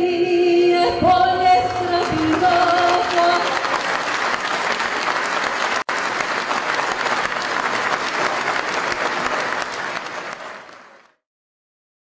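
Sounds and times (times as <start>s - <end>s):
audience applauding: 2.0s - 11.2s.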